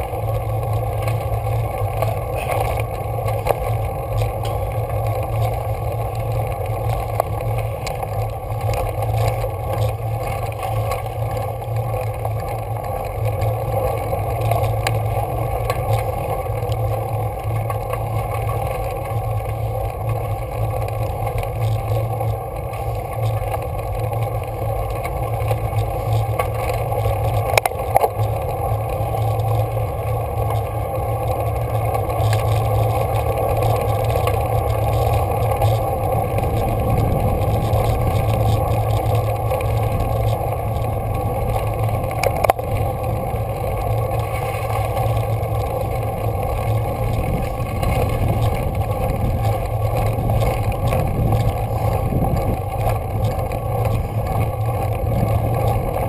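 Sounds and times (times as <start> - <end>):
bicycle road rumble: 0.0 - 56.0
wind on microphone: 33.9 - 43.7, 46.1 - 56.0.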